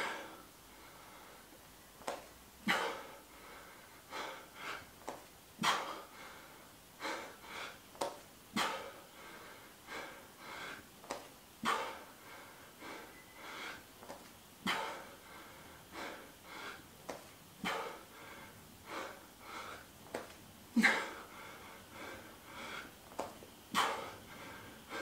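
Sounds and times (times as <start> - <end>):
man breathing heavily: 0.0 - 25.0.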